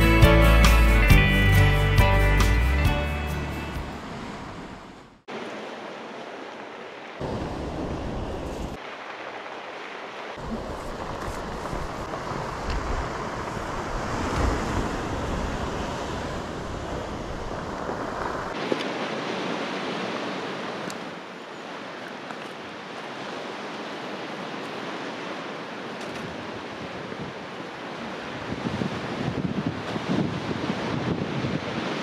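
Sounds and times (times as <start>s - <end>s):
surf on rocky shore: 2.5s - 32.0s
wind rumbling on microphone: 7.2s - 8.9s, 10.4s - 21.2s, 24.4s - 32.0s.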